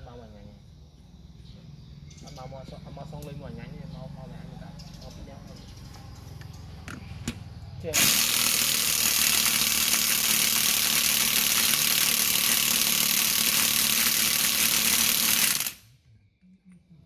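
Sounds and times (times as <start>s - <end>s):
machine hissing rush: 7.9s - 15.8s
faint low hum: 15.8s - 17.0s.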